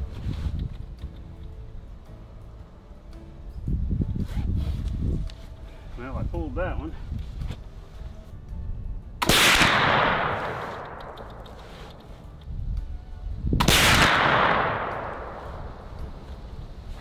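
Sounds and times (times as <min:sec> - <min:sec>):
rifle gunshots: 0:09.2 - 0:11.0, 0:13.6 - 0:15.8
gunshot echo: 0:09.2 - 0:11.3, 0:13.6 - 0:16.1.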